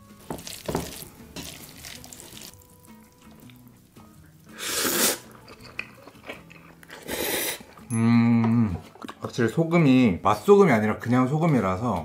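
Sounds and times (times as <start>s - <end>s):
wet squelching of tossed noodles: 0.2s - 4.6s
loud slurp of noodles: 4.5s - 5.3s, 6.9s - 7.8s.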